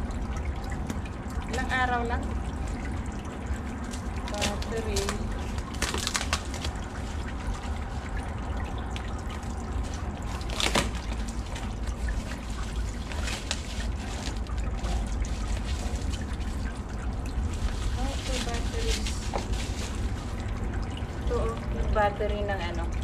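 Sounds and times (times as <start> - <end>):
cardboard and plastic rustling: 4.2 - 8.1, 9.8 - 16.6, 17.4 - 20.6
steady low rumble: 6.7 - 23.0.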